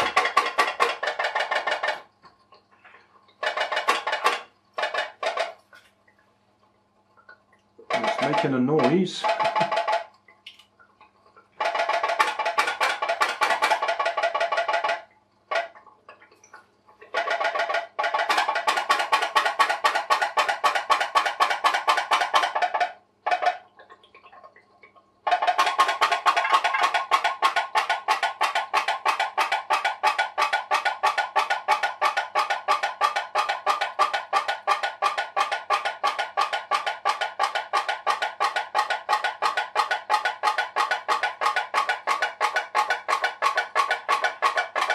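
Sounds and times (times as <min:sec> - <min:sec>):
pop-pop boat engine popping: 0:00.0 - 0:05.9, 0:07.1 - 0:44.9.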